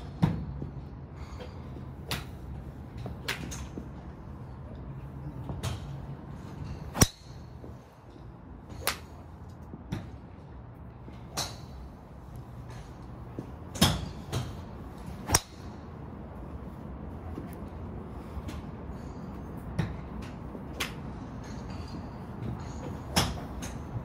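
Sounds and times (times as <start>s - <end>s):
golf drivers striking balls: 6.7s - 7.6s, 12.6s - 15.8s.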